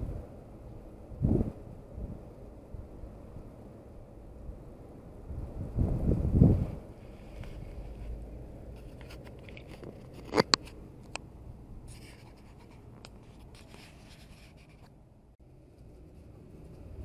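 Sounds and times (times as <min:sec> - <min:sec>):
fabric rubbing against microphone: 0:05.8 - 0:10.8, 0:11.9 - 0:15.0.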